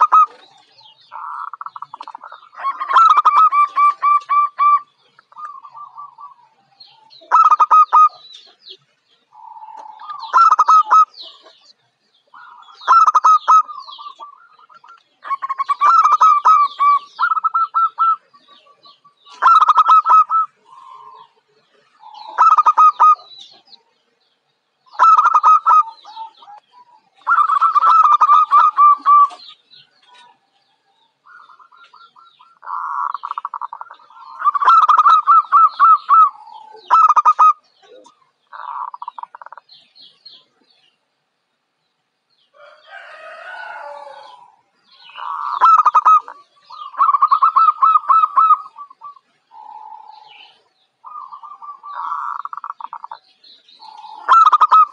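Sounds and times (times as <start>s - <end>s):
dove cooing: 0.0s - 8.7s, 9.3s - 11.7s, 12.3s - 23.9s, 24.9s - 39.7s, 42.6s - 54.9s.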